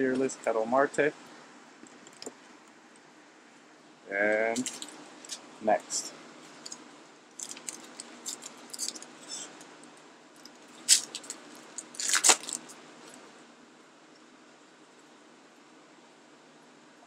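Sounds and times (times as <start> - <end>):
foil pack crinkling: 4.6 - 5.4, 7.4 - 9.5, 10.4 - 12.8
foil pack ripping: 4.6 - 5.4, 7.4 - 9.4, 10.8 - 12.8.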